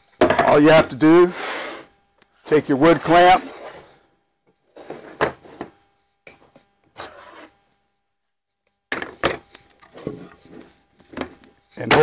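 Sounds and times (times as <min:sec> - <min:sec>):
wood scraping slides: 0:01.3 - 0:01.9.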